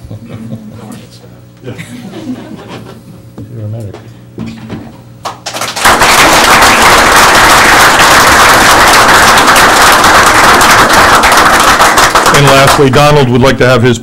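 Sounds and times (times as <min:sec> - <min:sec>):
audience applauding: 0:05.3 - 0:13.2.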